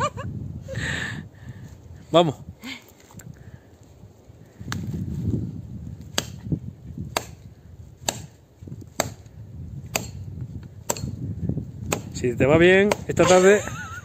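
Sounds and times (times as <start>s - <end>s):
axe chopping branch: 6.0s - 11.2s, 11.8s - 13.6s.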